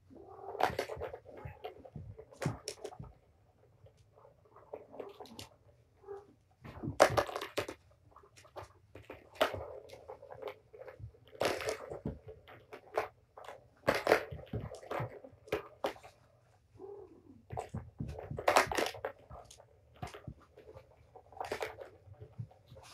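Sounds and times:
plastic balls clattering on tracks: 0:06.6 - 0:16.2, 0:17.4 - 0:22.9.

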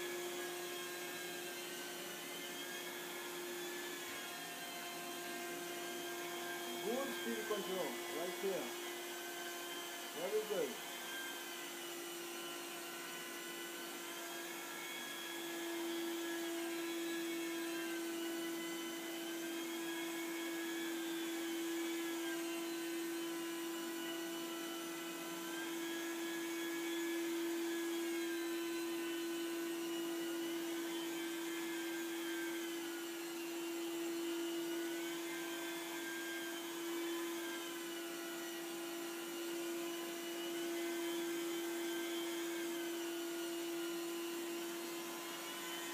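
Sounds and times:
carpet extraction machine humming: 0:04.9 - 0:11.2.

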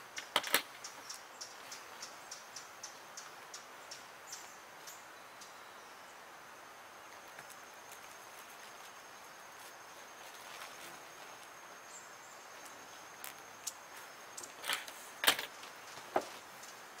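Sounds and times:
sharp knocks or rustles: 0:14.4 - 0:16.4.

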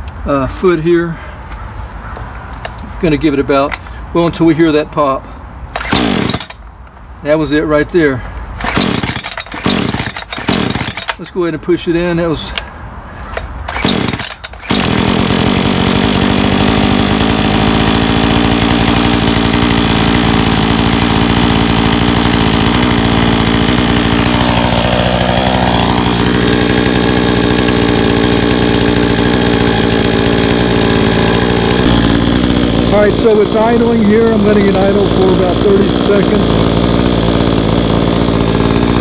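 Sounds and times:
chainsaw starter cord pull: 0:05.7 - 0:06.6, 0:08.6 - 0:11.3, 0:13.4 - 0:39.0
chainsaw engine idling: 0:05.8 - 0:06.6, 0:08.6 - 0:11.3, 0:13.7 - 0:39.0.

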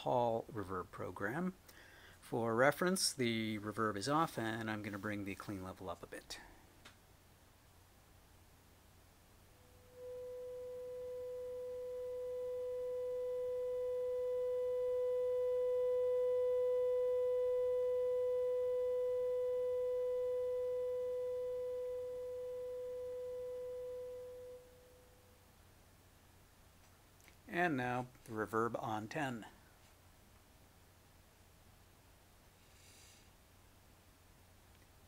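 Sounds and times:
sine test tone: 0:09.3 - 0:25.8.

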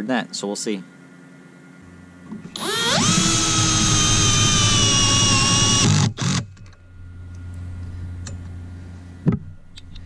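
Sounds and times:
cordless drill driving a screw: 0:02.6 - 0:06.4.

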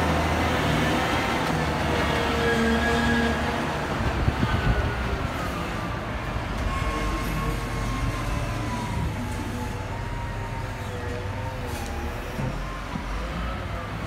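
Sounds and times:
diesel engine rumble with whine: 0:00.0 - 0:14.0.

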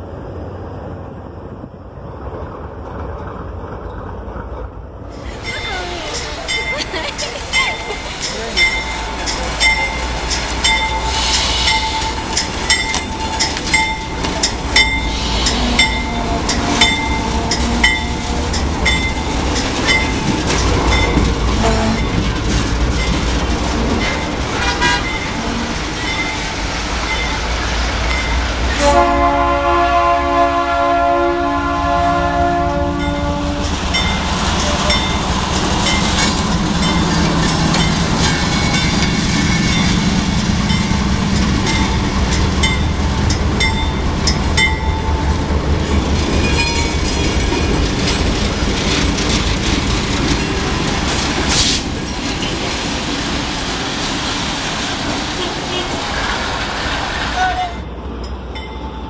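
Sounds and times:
locomotive bell ringing: 0:05.2 - 0:27.5, 0:32.9 - 0:48.5, 0:57.8 - 0:59.0
locomotive horn blast: 0:15.4 - 0:18.6, 0:21.5 - 0:22.2, 0:24.6 - 0:25.8, 0:28.7 - 0:33.7.

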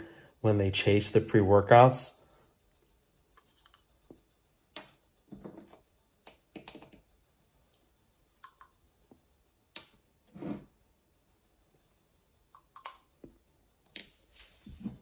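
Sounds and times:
short breath: 0:00.0 - 0:00.4.

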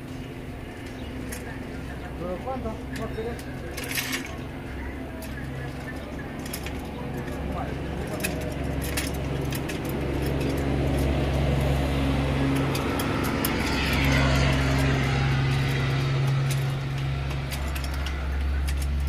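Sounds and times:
street noise: 0:00.0 - 0:19.0
vehicle engine humming: 0:00.0 - 0:19.0.

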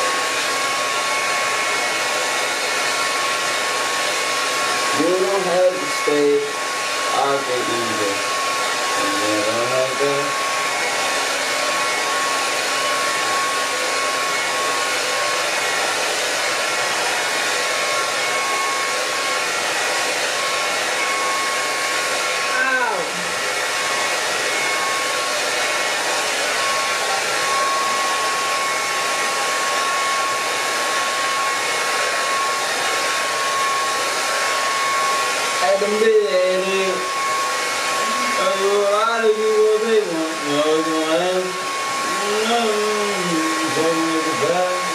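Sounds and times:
hair dryer running: 0:00.0 - 0:44.9.

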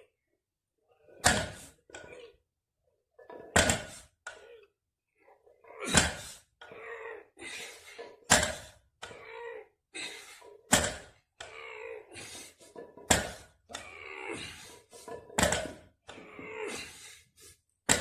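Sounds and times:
barbell thudding on brick paving: 0:01.1 - 0:02.1, 0:03.3 - 0:04.1, 0:05.9 - 0:06.4, 0:08.2 - 0:08.8, 0:10.7 - 0:11.4, 0:12.8 - 0:13.8, 0:15.0 - 0:16.1
heavy breathing: 0:07.3 - 0:08.2, 0:09.9 - 0:10.6, 0:11.8 - 0:12.8, 0:13.9 - 0:15.2, 0:16.1 - 0:17.7.

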